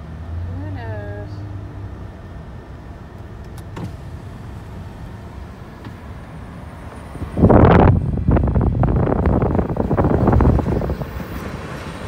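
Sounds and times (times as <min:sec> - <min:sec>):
engine and tyres rumbling: 0:00.0 - 0:12.0
wind noise on microphone: 0:07.1 - 0:12.0.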